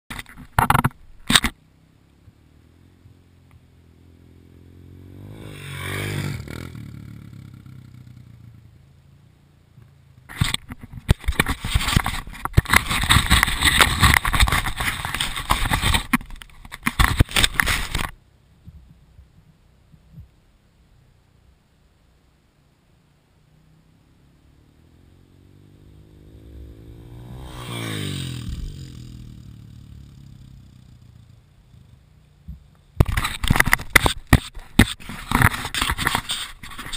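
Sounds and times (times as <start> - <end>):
handling noise on microphone: 0.1 - 1.6, 10.3 - 20.4, 32.4 - 36.9
dirt bike engine passing: 1.6 - 9.0, 23.6 - 32.4.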